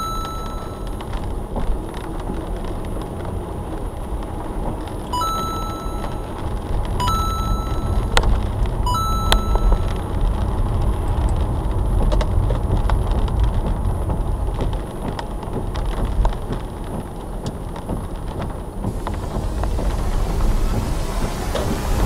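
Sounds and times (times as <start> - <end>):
engine and road rumble: 0.0 - 22.0
tyre hiss on wet road: 18.8 - 22.0.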